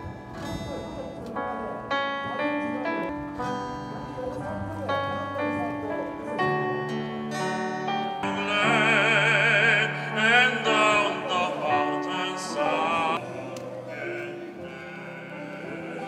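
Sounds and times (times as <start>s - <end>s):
acoustic guitar: 0.0s - 16.0s
electronic keyboard: 0.0s - 16.0s
man singing with vibrato: 8.2s - 16.0s.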